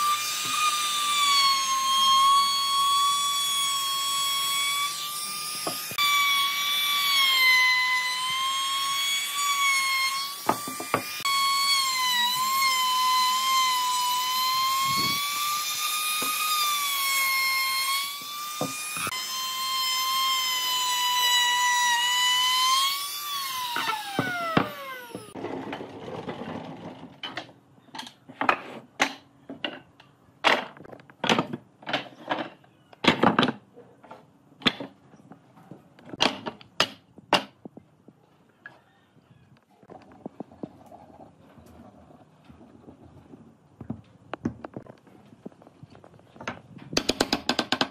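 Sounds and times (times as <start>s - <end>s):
trim router whining: 0.0s - 25.4s.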